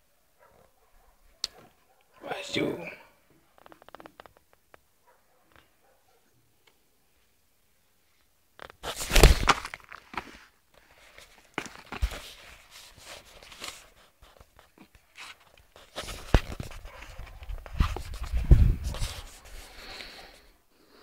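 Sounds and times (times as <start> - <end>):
hoodie rustling against microphone: 8.6 - 20.5.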